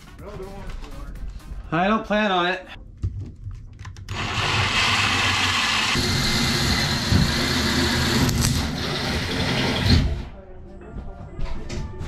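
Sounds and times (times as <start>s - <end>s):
cordless drill drilling: 4.1s - 9.9s.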